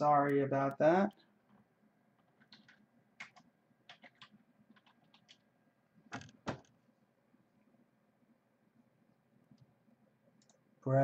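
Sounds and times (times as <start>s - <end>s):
keyboard typing: 2.2s - 5.4s.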